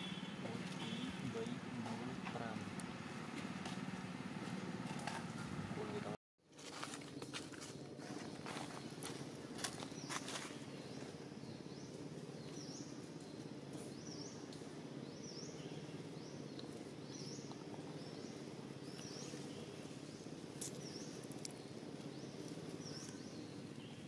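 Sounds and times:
dry leaves rustling: 6.5s - 11.0s
small bird chirping: 8.2s - 24.0s.

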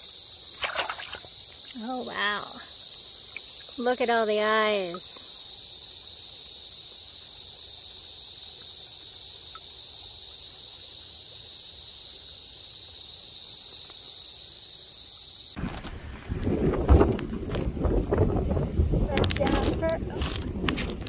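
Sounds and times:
insects chirring: 0.0s - 21.0s.

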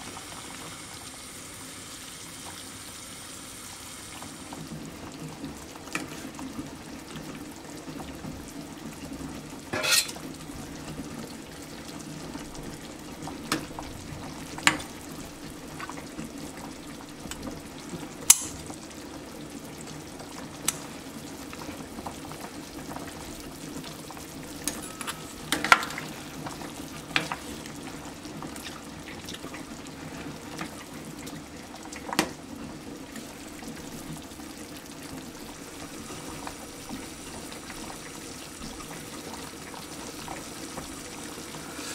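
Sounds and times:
soup boiling in a pot: 0.0s - 41.9s
metal ladle clinking on pot: 9.8s - 10.2s, 24.7s - 25.8s.

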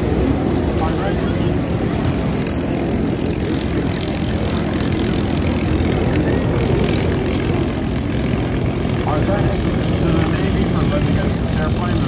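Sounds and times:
piston aircraft engine running: 0.0s - 12.0s.

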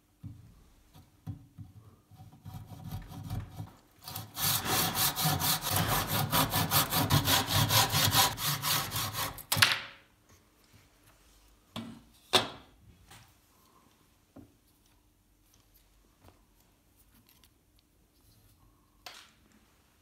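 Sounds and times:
hand saw cutting wood: 2.2s - 9.6s.

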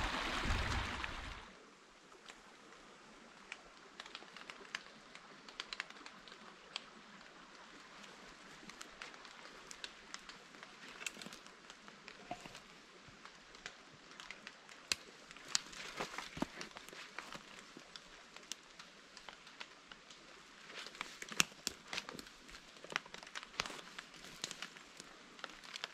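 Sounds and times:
faint steady hiss: 0.0s - 25.9s
twigs snapping underfoot: 3.5s - 25.9s
footsteps through undergrowth: 15.4s - 18.4s.

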